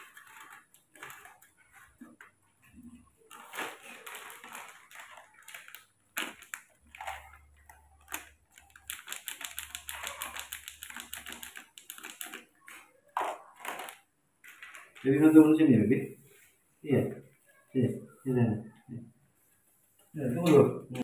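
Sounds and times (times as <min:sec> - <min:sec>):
plastic sachet crinkling: 0:00.0 - 0:15.1.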